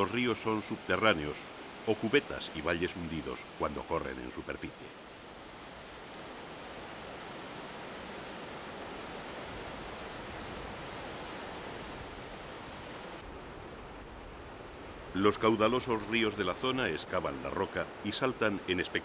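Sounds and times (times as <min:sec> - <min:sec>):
waterfall rushing: 0:00.0 - 0:13.3.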